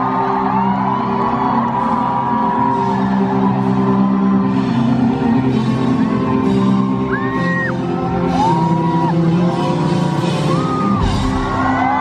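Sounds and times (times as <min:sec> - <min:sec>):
audience whistles and whoops: 0:00.0 - 0:04.6, 0:06.2 - 0:09.3, 0:10.2 - 0:12.0
rock band playing: 0:00.0 - 0:12.0.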